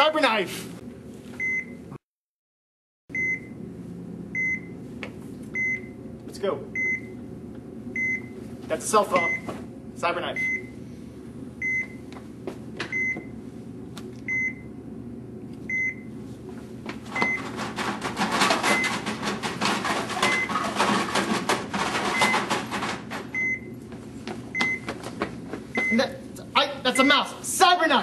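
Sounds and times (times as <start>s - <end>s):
patient monitor beeping: 3.1s - 3.6s, 4.4s - 4.8s, 5.6s - 6.0s, 6.7s - 7.2s, 8.0s - 8.4s, 10.4s - 10.8s, 11.6s - 12.1s, 12.9s - 13.4s, 14.3s - 14.7s, 15.7s - 16.2s, 17.1s - 17.6s, 18.6s - 19.1s, 20.2s - 20.6s, 22.0s - 22.6s, 23.3s - 23.8s, 24.5s - 25.0s, 25.7s - 26.2s
loud rustling and clattering: 17.4s - 23.3s.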